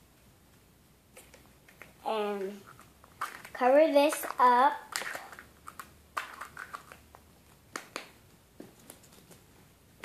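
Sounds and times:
plastic toy egg clicking: 2.7s - 7.1s.

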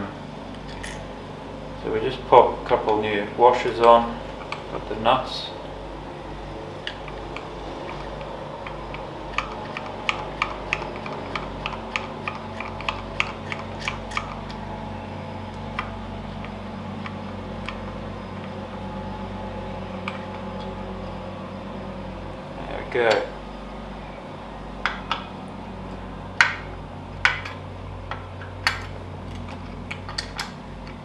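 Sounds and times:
steady low hum: 0.0s - 31.0s
metal washers and nuts clicking: 26.4s - 31.0s.

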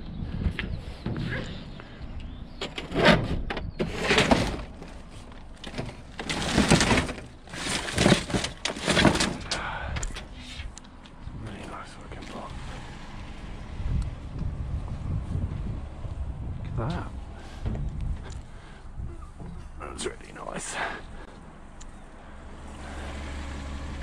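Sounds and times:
debris clattering in a skip: 2.6s - 10.4s.

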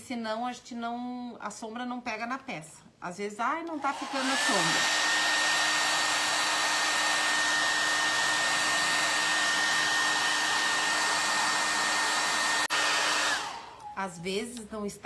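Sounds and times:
handheld dryer blowing air: 3.7s - 13.8s.

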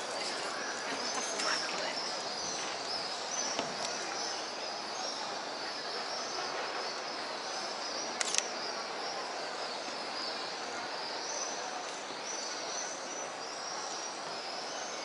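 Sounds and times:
city background noise: 0.0s - 15.0s
sharp click: 8.2s - 8.5s.

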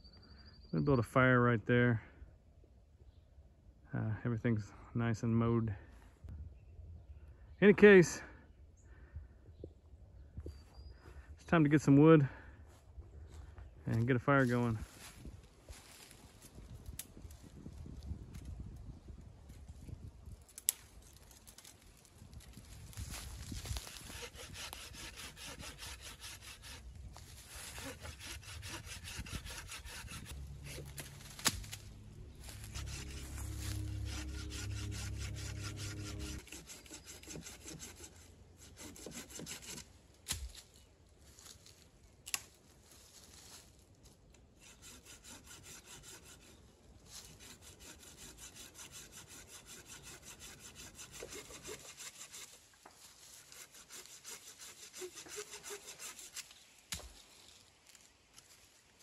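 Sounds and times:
hand saw cutting wood: 23.1s - 40.5s, 44.6s - 57.2s
low hum: 28.2s - 36.5s.

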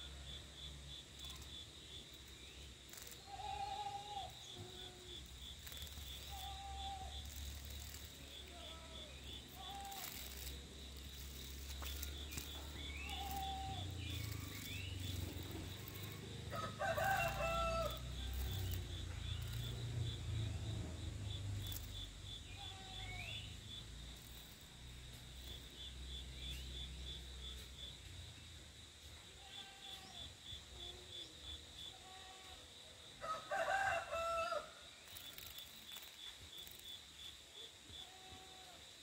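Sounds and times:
high insect trill: 0.0s - 39.0s
rooster crowing: 16.0s - 18.8s, 33.2s - 34.8s.

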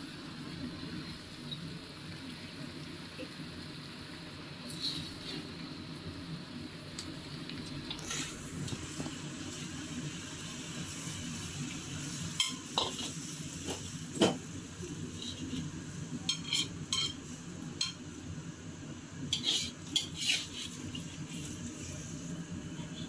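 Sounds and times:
low sizzle: 0.0s - 23.0s
metal utensil scraping a pan: 16.3s - 17.2s, 19.3s - 20.8s.

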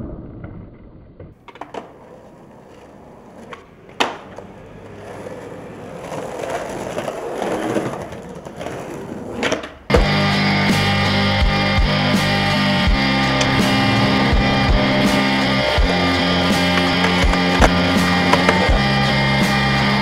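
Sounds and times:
skateboard wheels rolling on concrete: 0.0s - 20.0s
skateboard clack: 1.2s - 11.4s, 12.1s - 20.0s
skateboard clicks: 1.4s - 10.0s, 16.6s - 19.0s.

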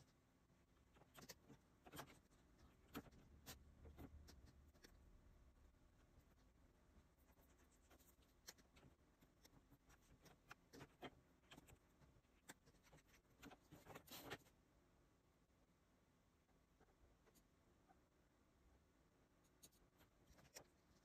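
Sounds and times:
stylus tapping and scratching screen: 0.8s - 14.6s, 19.4s - 21.0s.

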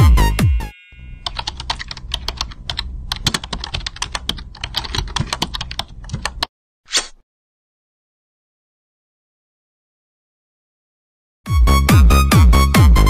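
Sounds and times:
low steady hum: 1.0s - 6.4s.

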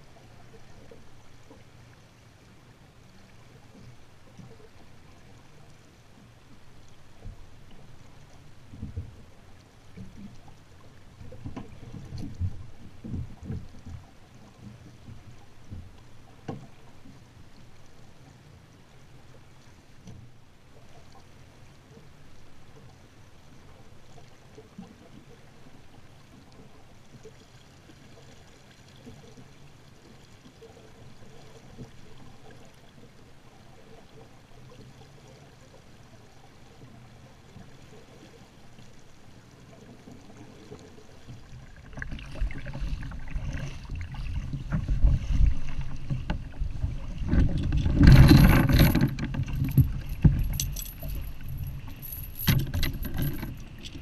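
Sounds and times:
water lapping and splashing: 0.0s - 54.0s
wind on microphone: 42.4s - 54.0s
metal chain rattling: 47.6s - 54.0s.

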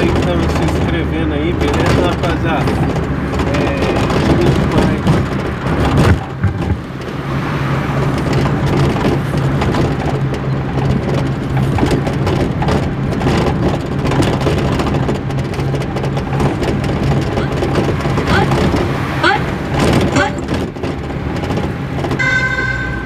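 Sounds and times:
engine drone: 0.0s - 23.0s
road rumble: 0.0s - 23.0s.

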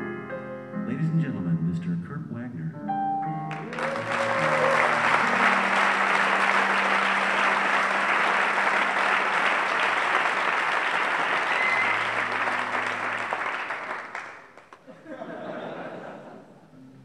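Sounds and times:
piano notes: 0.0s - 10.7s, 11.3s - 14.5s
audience applauding: 3.5s - 15.0s.

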